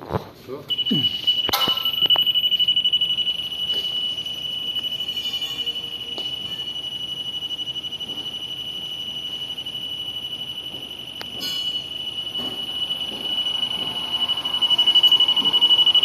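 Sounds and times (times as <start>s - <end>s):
electronic warning buzzer: 0.7s - 16.0s.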